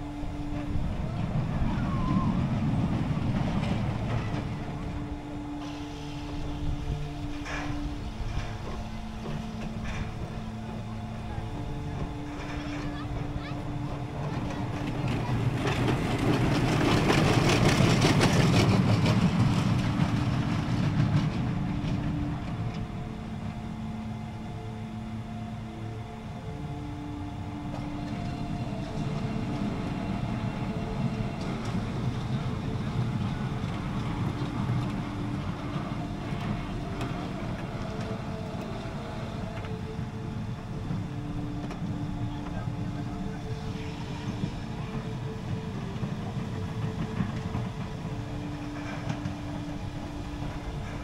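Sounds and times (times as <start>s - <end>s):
roller coaster train rumbling: 0.0s - 51.0s
wheels rattling clicks: 7.2s - 24.1s, 26.8s - 51.0s.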